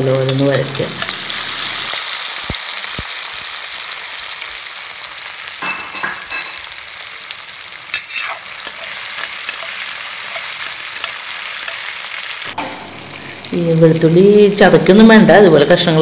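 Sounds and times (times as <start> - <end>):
food sizzling in hot oil: 0.0 - 16.0
spatula scraping pan: 7.9 - 12.0.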